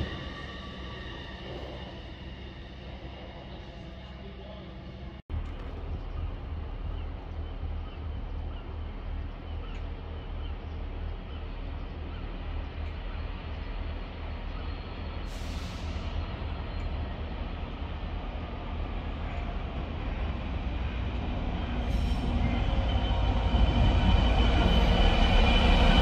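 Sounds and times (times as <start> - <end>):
distant diesel locomotive throb: 0.0 - 26.0.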